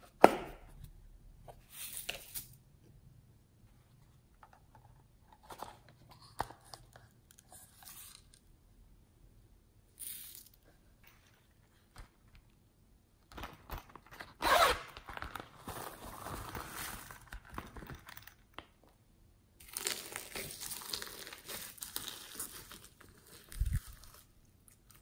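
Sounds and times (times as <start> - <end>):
plastic pouch crinkling: 13.4 - 18.1, 19.6 - 25.0.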